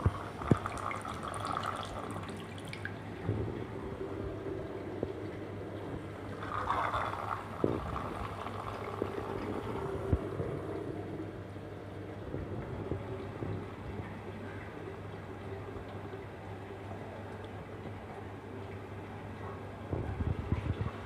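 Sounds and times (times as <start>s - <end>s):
water splashing into funnel: 0.0s - 3.1s, 6.4s - 9.6s
steady low hum: 0.0s - 21.0s.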